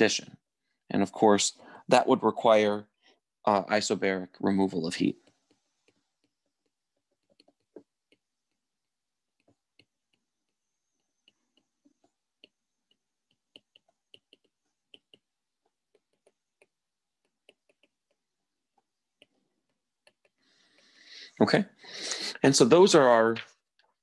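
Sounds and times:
stylus tapping on glass screen: 9.3 - 18.3.

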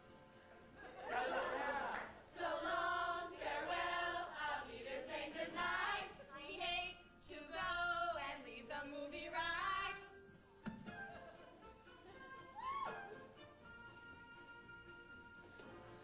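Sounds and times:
stage cast singing in chorus: 1.2 - 9.4.

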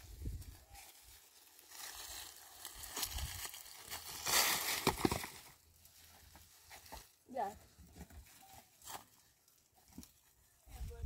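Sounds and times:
gravel crunching and scraping: 0.0 - 10.2
rocks knocking: 4.8 - 5.4.

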